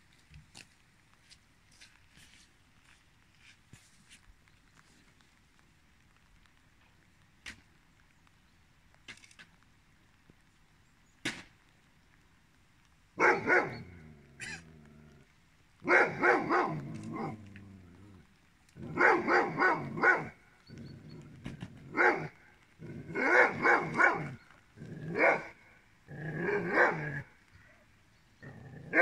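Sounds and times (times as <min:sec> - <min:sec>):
dog barking loudly: 0:13.2 - 0:14.0, 0:15.8 - 0:17.4, 0:18.8 - 0:20.4, 0:21.9 - 0:22.4, 0:23.0 - 0:24.4, 0:25.0 - 0:27.3, 0:28.8 - 0:29.0.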